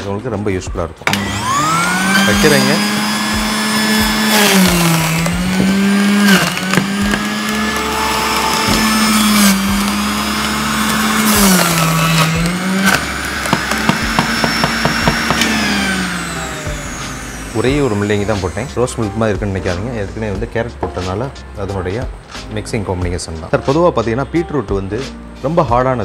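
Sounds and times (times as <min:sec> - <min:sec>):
juicer motor whining: 0:01.0 - 0:19.0.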